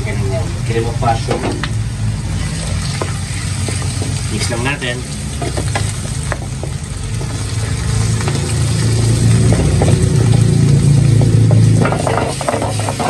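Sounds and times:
mushrooms sizzling in a pan: 0.0s - 13.0s
low hum: 5.0s - 13.0s
spatula scraping a pan: 11.1s - 13.0s.

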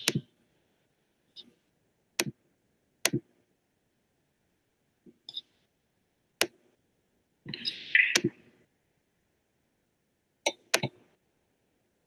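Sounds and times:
computer mouse clicks: 0.0s - 0.3s, 2.2s - 2.4s, 3.0s - 3.3s, 7.5s - 8.4s, 10.4s - 11.0s.

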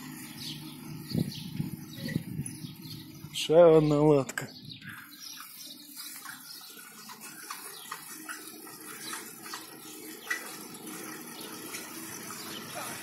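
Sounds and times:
tyre and wind noise: 0.6s - 3.4s.

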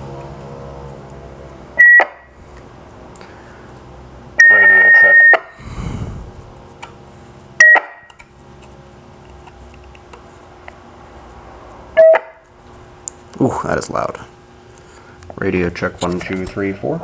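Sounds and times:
short electronic beeps: 1.8s - 2.3s, 4.4s - 5.5s, 7.6s - 8.1s, 12.0s - 12.4s.

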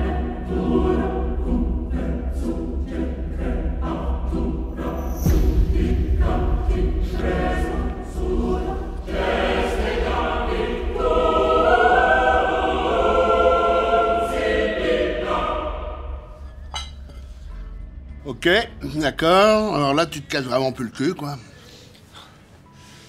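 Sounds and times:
choir singing long held notes: 0.0s - 16.5s.

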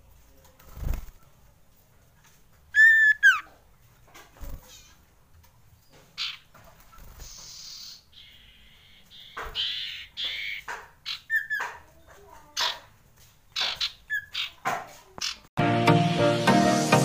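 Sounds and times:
bird chirping and whistling: 2.8s - 3.4s, 7.2s - 11.6s.

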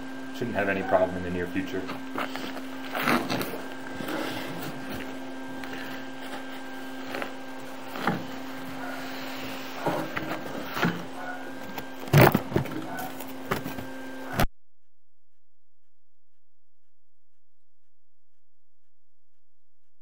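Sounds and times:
steady electrical hum: 0.0s - 14.5s.

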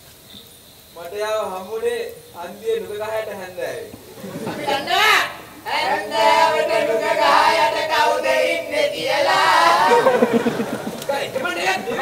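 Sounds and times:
young men singing in unison: 4.2s - 12.0s.

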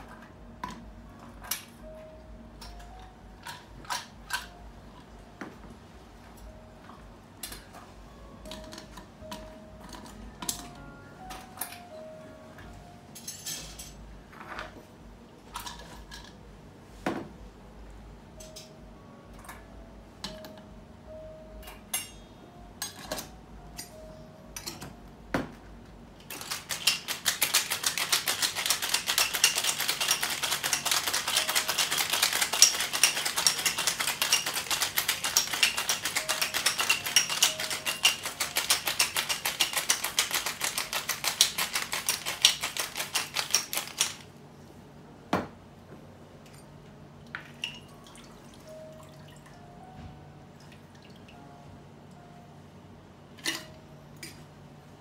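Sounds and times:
ice rattling in cocktail shaker: 26.3s - 44.2s.

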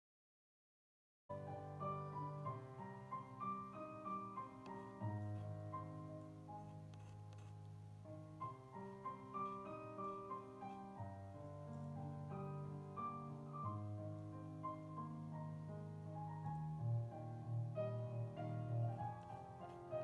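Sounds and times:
slow piano music: 1.3s - 20.0s.

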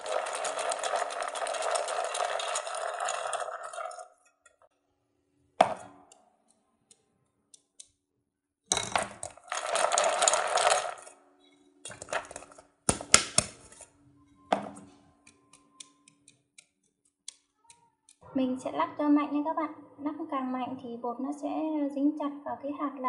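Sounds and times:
peanuts rattling in a metal pot: 0.0s - 4.1s, 9.0s - 11.2s.

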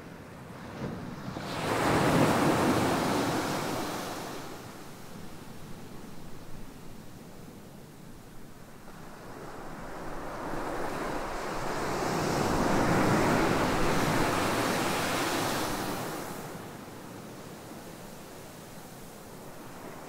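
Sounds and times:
ocean wave breaking on sand: 0.9s - 4.8s.

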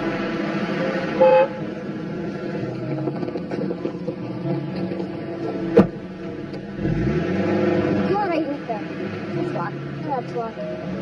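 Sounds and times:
city street traffic: 0.0s - 11.0s
car horn honk: 1.1s - 1.8s.

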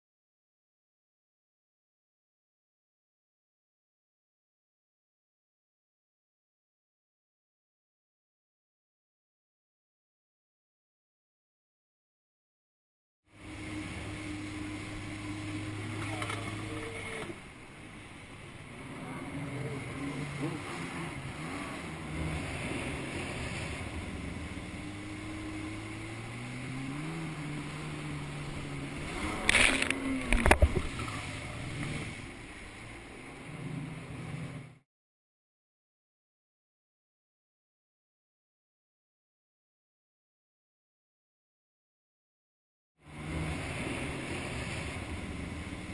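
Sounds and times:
jet ski engine: 13.3s - 34.8s, 43.0s - 45.9s
water rushing and spray: 13.3s - 34.8s, 43.0s - 45.9s.

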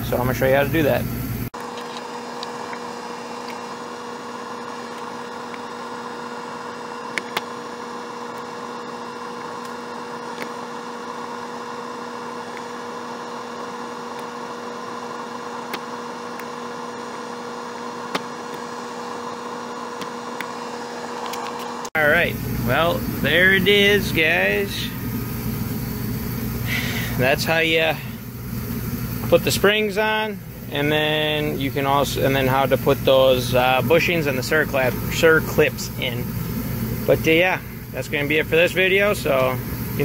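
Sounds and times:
steady hum: 0.0s - 40.0s.

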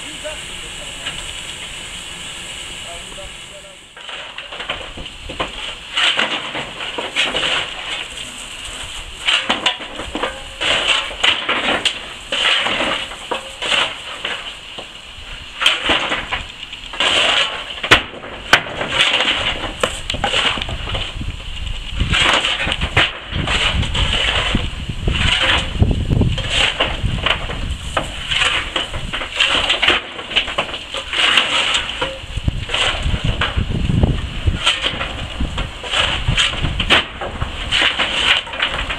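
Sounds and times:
steady steam hiss: 0.0s - 38.9s
coal crunching and clattering: 3.9s - 38.9s.

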